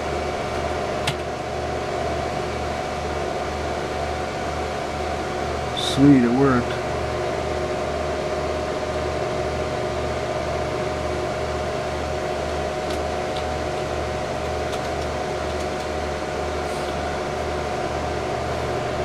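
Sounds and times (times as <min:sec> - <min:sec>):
computer cooling fans whirring: 0:00.0 - 0:19.0.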